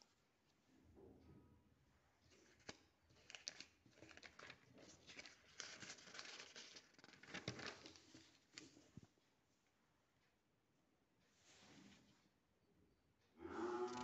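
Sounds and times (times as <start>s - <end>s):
paper rustling and crinkling: 2.3s - 9.0s.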